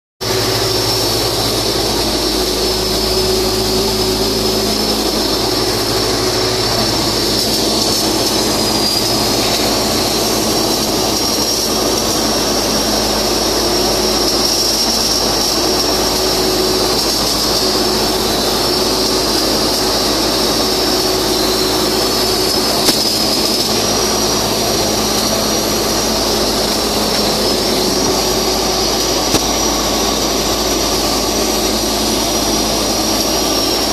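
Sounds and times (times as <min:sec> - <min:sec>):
machine drone with high whine: 0:00.2 - 0:33.9.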